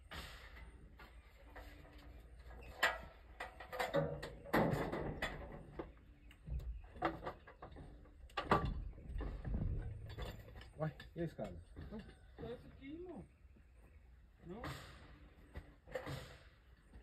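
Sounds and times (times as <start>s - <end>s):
ladders and lumber knocking: 0.1s - 17.0s.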